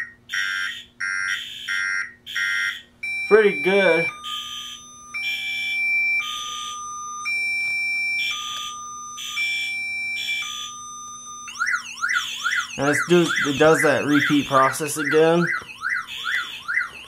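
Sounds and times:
car alarm siren: 0:00.0 - 0:17.0.

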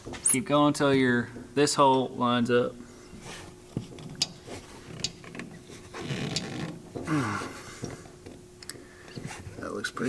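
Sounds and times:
rubber bag clicks and creaks: 0:03.9 - 0:07.0.

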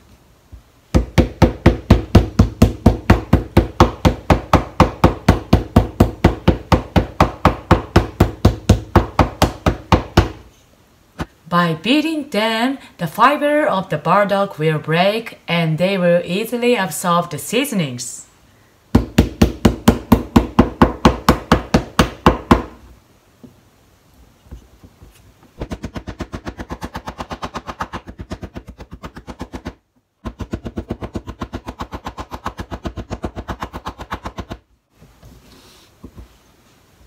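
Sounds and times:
wooden pestle knocking on cutting board: 0:01.0 - 0:10.4, 0:19.0 - 0:22.8.

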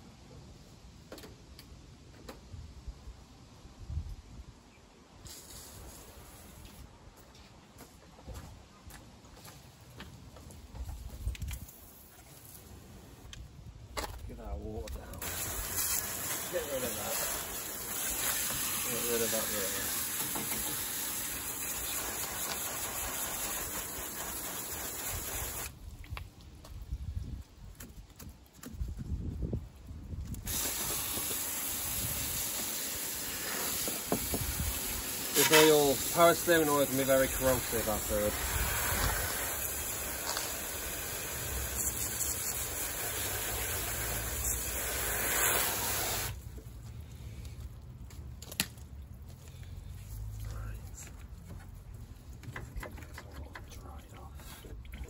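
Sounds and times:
hose nozzle spraying water: 0:05.2 - 0:06.8, 0:15.1 - 0:25.8, 0:30.3 - 0:46.4.

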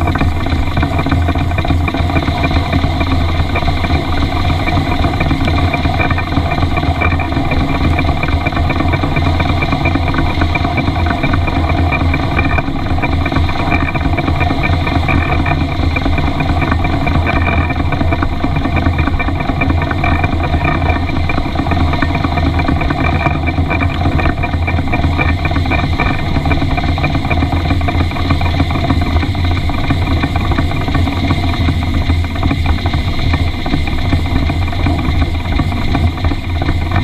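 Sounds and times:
model steam locomotive running: 0:00.0 - 0:37.0.

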